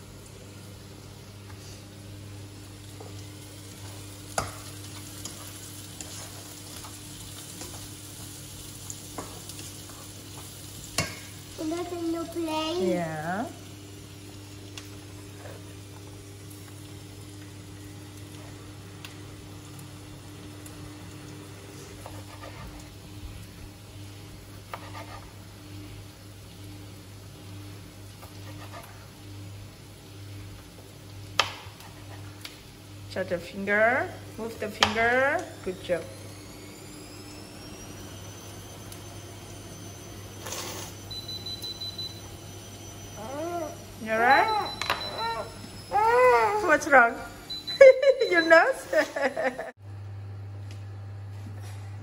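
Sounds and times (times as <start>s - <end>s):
faint high tone: 43.1s - 46.8s.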